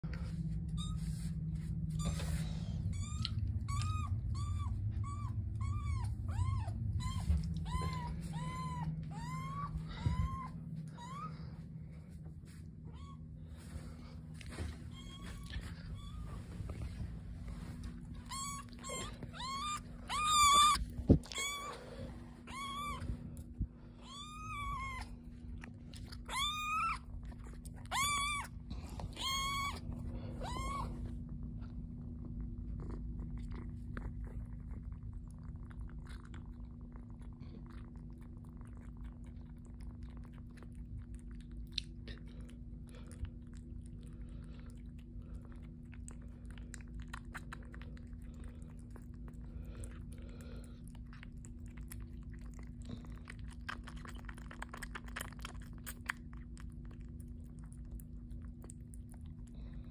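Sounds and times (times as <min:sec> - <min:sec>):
steady low hum: 0:00.0 - 0:59.9
kitten mewing: 0:02.8 - 0:11.4, 0:18.2 - 0:25.2, 0:26.2 - 0:31.0
kitten suckling on bottle: 0:14.2 - 0:59.9.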